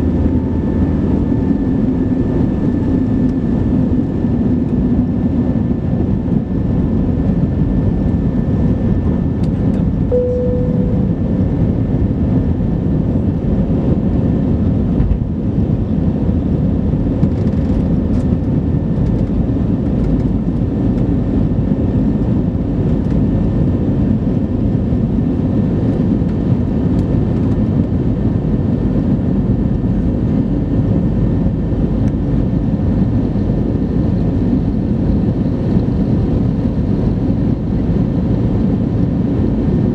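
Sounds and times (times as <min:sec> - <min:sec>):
jet engines rumbling in cabin: 0:00.0 - 0:39.9
airflow noise: 0:09.8 - 0:12.3
short cabin tone: 0:10.1 - 0:11.6.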